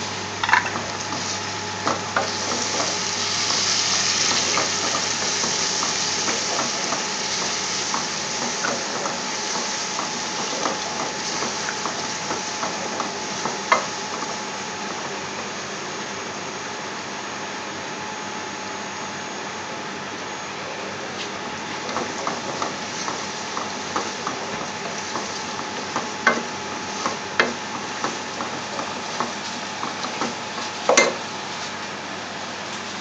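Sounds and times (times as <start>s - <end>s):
food sizzling in hot oil: 0.0s - 14.8s, 21.8s - 31.2s.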